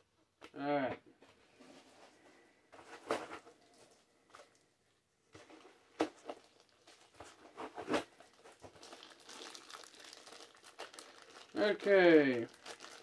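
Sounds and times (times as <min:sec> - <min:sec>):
plastic bag crinkling: 0:06.2 - 0:07.3, 0:08.1 - 0:13.0.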